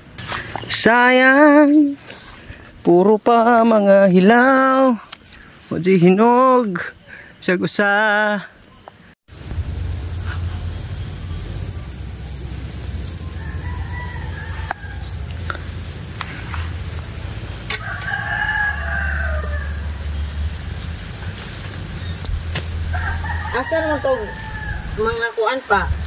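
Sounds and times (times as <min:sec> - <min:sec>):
steady low rumble: 0:09.3 - 0:18.1, 0:18.7 - 0:23.6
rooster crowing: 0:13.1 - 0:15.5, 0:17.6 - 0:20.2, 0:22.8 - 0:25.2.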